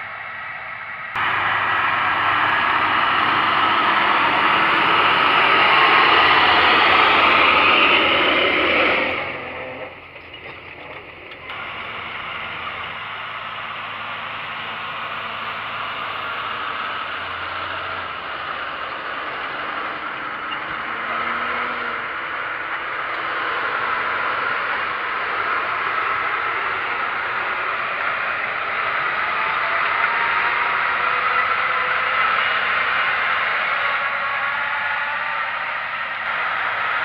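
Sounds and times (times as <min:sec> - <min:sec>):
tractor engine drone with hiss: 0:00.0 - 0:37.0.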